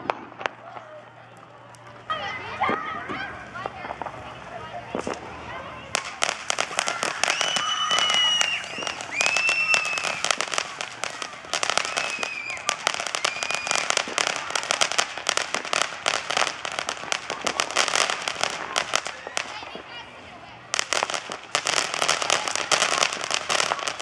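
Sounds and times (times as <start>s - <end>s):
firework crackling: 0.0s - 24.0s
firework whistles: 4.9s - 24.0s.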